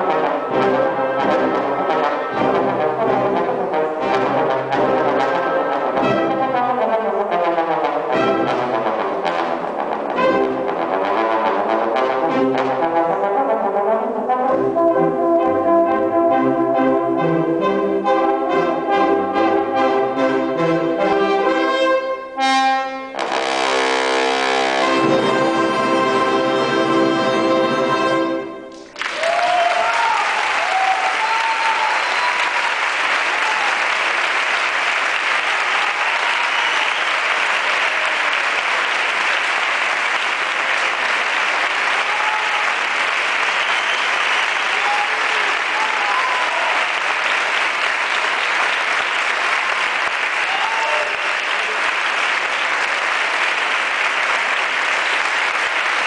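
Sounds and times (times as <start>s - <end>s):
audience applauding: 28.7s - 56.0s.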